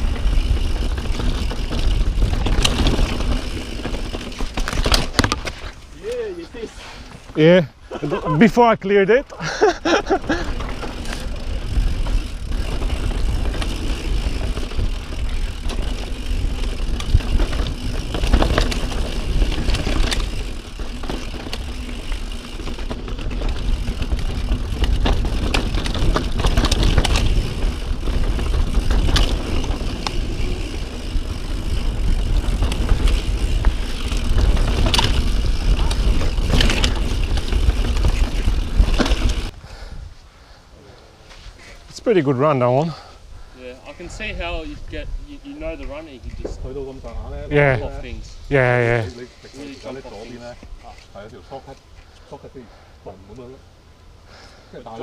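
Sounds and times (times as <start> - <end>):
wind rumble on microphone: 0.0 - 4.1, 22.6 - 40.2, 44.0 - 48.5
bike knocking and rattling: 0.0 - 7.5, 9.6 - 39.6
bike tyres on dirt and rock: 0.0 - 55.0.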